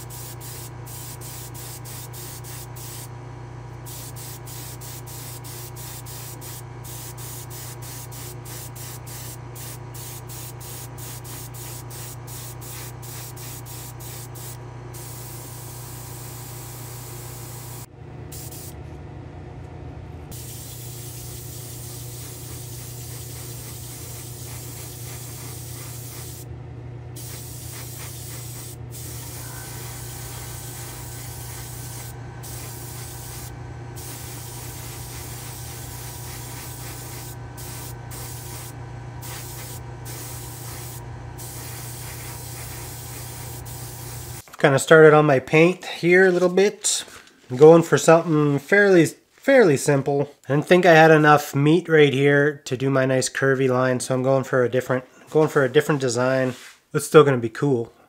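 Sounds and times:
airbrush spraying hiss: 0.0s - 3.1s, 3.8s - 18.7s, 20.3s - 26.5s, 27.2s - 44.4s
constant low hum: 0.0s - 44.6s.

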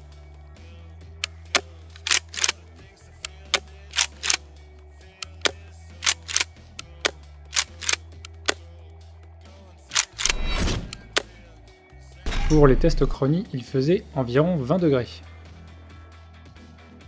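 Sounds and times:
gun trigger clicks: 1.2s - 2.6s, 3.2s - 4.4s, 5.2s - 8.6s, 9.9s - 11.3s.

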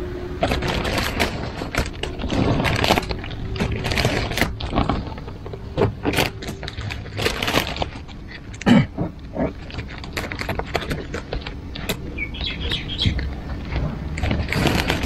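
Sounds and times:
sticker peeling crackle: 0.4s - 8.7s.

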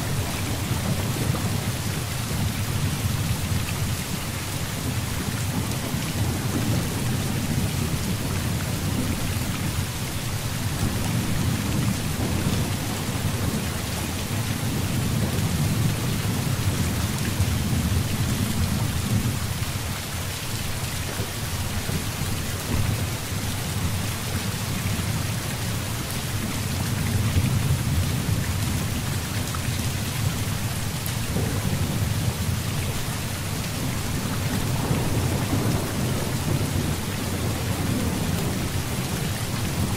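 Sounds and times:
heavy rain: 0.0s - 39.9s
rolling thunder: 10.6s - 19.4s, 30.2s - 39.9s.

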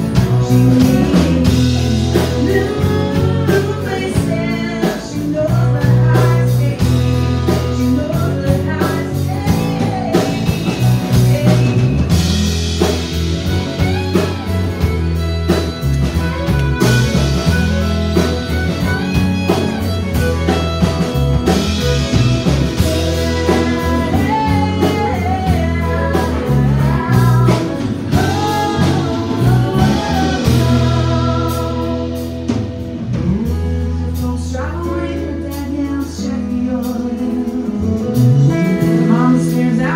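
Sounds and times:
woman singing: 0.0s - 13.0s, 21.4s - 32.6s, 33.2s - 39.9s
country band playing: 0.0s - 39.9s
fiddle bowing: 12.7s - 32.2s.

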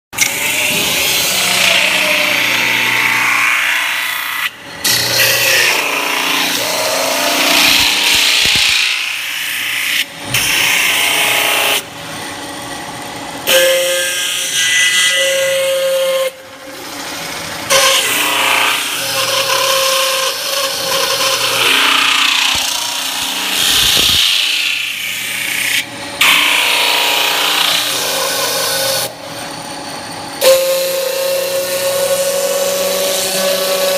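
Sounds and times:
high whine: 20.8s - 25.1s.

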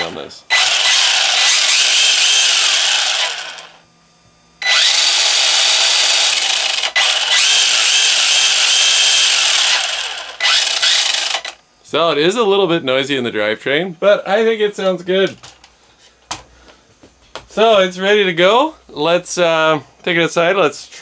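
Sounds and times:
electric motor whirring whine: 0.0s - 4.0s, 4.6s - 11.6s.

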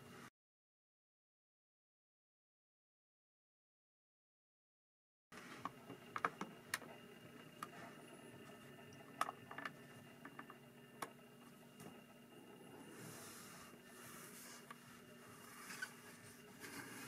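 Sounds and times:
faint steady hum: 5.4s - 17.0s.

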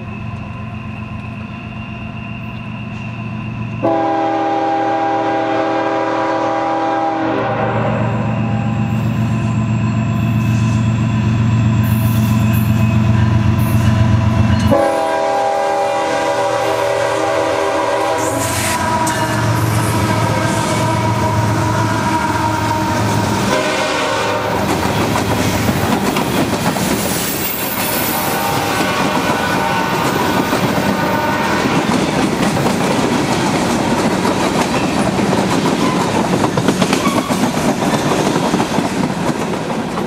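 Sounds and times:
diesel locomotive engine rumbling: 0.0s - 40.0s
train wheel and rail noise: 0.0s - 40.0s
locomotive air horn blasts: 3.8s - 8.9s, 14.6s - 24.7s, 28.0s - 31.9s.

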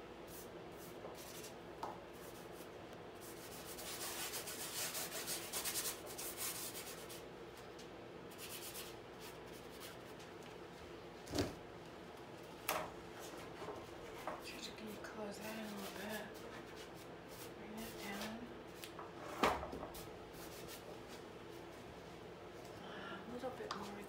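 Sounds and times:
paintbrush scrubbing canvas: 2.2s - 7.2s.

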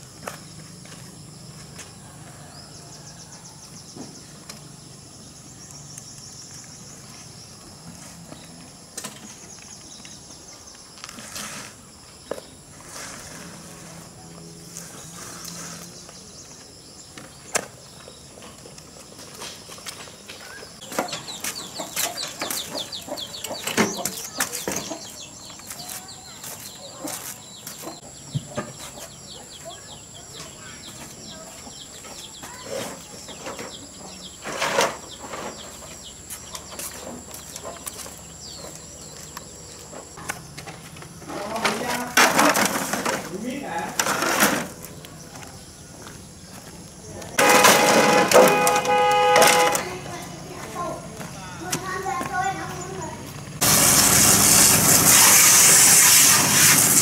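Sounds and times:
high insect whine: 0.0s - 42.0s
bird chirping: 14.2s - 40.6s.

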